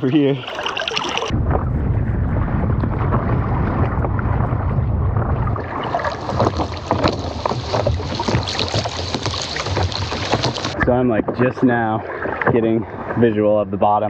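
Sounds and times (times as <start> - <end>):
sharp little splashes: 0.0 - 1.3, 5.5 - 10.8
lake water sloshing and lapping: 0.0 - 1.6, 2.7 - 13.6
wind buffeting microphone: 1.3 - 11.8.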